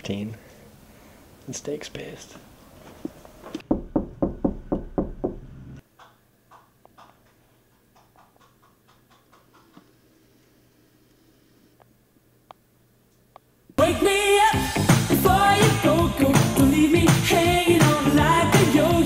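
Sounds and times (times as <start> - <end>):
rapid knocking on a door: 3.6 - 5.5.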